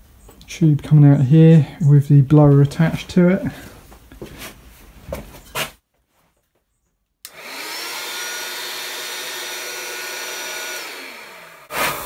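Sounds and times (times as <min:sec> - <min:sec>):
electric blower whining: 0:07.3 - 0:12.0.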